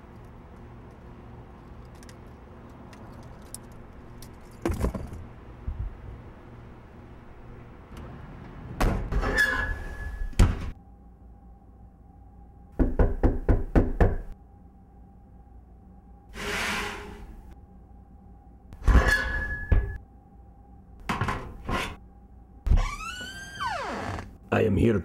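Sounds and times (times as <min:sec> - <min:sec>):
knocking on a door: 0:12.8 - 0:14.3.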